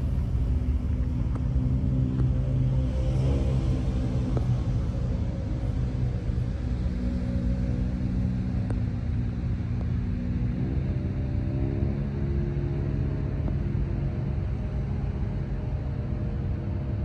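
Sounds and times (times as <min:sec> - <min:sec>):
motor engine droning: 0:00.0 - 0:17.0.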